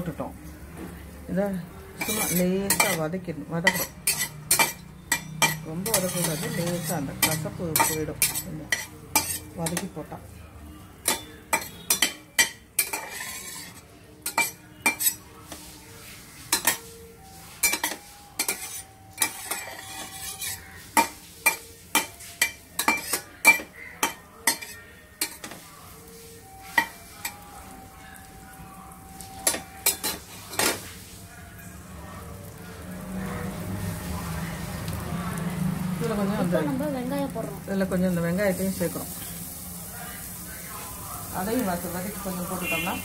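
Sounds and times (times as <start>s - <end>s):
faint sizzle: 0.0s - 43.0s
spatula clinking and scraping pan: 2.0s - 10.1s, 11.0s - 27.6s, 29.2s - 31.0s.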